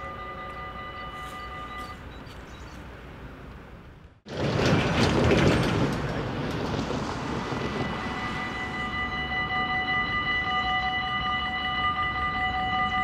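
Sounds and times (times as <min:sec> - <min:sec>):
level crossing warning bells: 0:00.0 - 0:02.2, 0:07.3 - 0:13.0.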